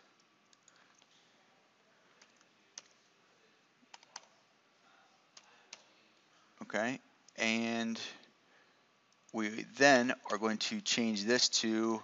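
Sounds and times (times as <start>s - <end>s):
computer keys clicking: 0.2s - 1.2s, 2.2s - 3.0s, 3.9s - 4.4s, 5.3s - 5.9s.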